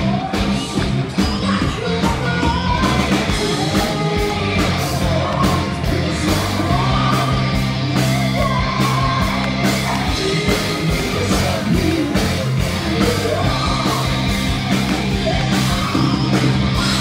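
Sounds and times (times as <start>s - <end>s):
bass guitar: 0.0s - 17.0s
drums: 0.0s - 17.0s
electric guitar: 0.0s - 17.0s
woman singing lead: 0.0s - 17.0s.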